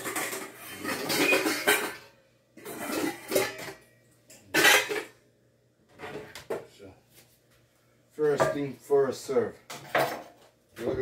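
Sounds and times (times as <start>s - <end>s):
pots and pans clattering: 0.0s - 5.2s, 9.7s - 10.5s.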